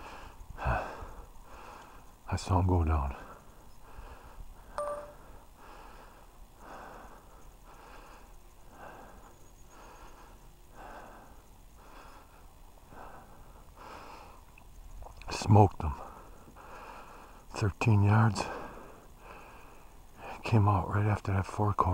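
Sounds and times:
man breathing hard and fast: 0.0s - 2.2s, 3.2s - 4.7s, 5.3s - 14.4s, 16.1s - 17.5s, 18.4s - 20.4s.

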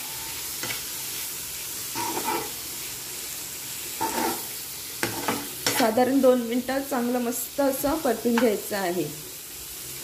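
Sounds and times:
meat sizzling in oil: 0.0s - 10.0s
metal spatula scraping: 1.9s - 2.6s, 3.9s - 6.0s.

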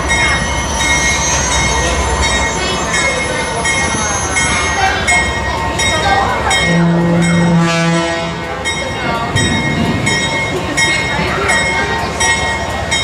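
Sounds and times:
high-pitched metallic squeal: 0.0s - 8.8s
diesel locomotive engine rumbling: 0.0s - 13.0s.

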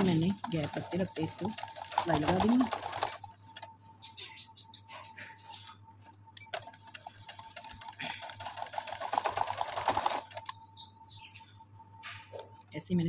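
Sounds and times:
sewing machine stitching: 0.0s - 3.2s, 7.0s - 10.5s.

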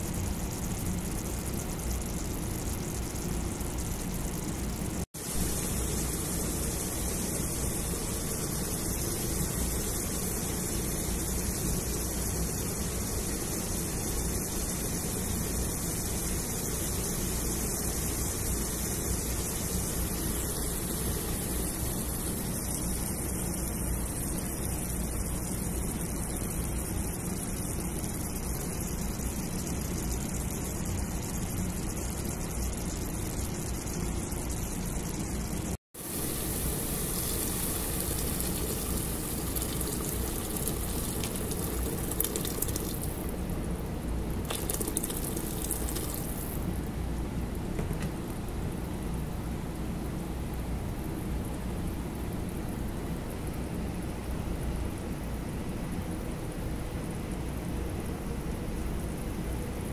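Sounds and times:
pot hissing on stove: 0.0s - 24.7s, 36.0s - 43.4s, 44.3s - 46.7s
water pouring into pot: 36.0s - 43.4s, 44.4s - 46.6s.

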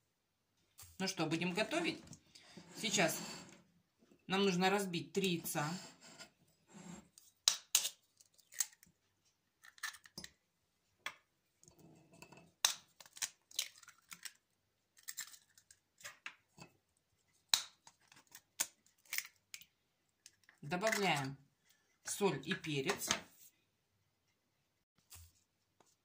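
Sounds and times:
eggshells cracking: 7.5s - 8.9s, 9.6s - 10.2s, 12.6s - 14.4s, 15.0s - 16.2s.

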